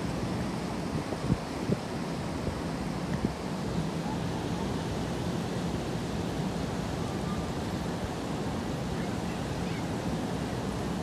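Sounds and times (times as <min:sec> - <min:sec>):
wind and rain storm rushing: 0:00.0 - 0:07.0.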